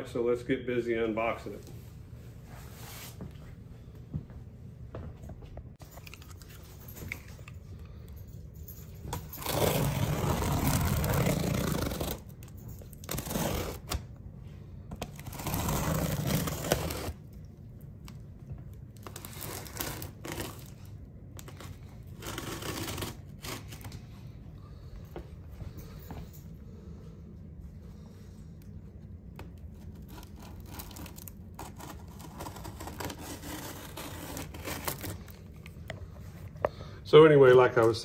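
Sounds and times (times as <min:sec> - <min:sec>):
packing tape ripping: 0:09.3 - 0:14.1, 0:15.0 - 0:17.2, 0:19.0 - 0:24.0, 0:29.9 - 0:35.5
knife scraping cardboard: 0:15.1 - 0:17.2, 0:21.4 - 0:23.9, 0:30.0 - 0:35.2.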